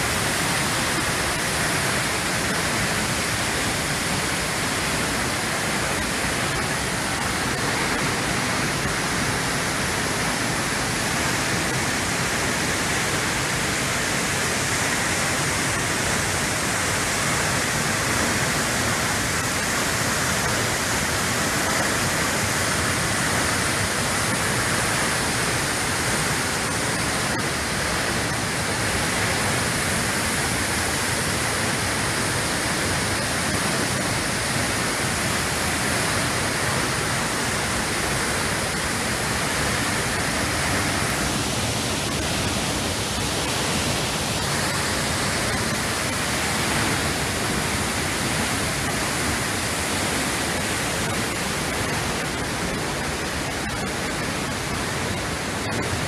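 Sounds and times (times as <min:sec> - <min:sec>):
waterfall rushing: 0:00.0 - 0:56.0.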